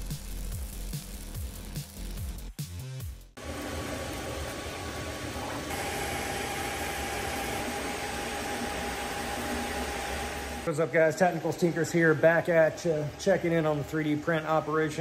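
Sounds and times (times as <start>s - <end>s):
faint motor whine: 3.4s - 15.0s
printer fan hiss: 5.7s - 10.7s.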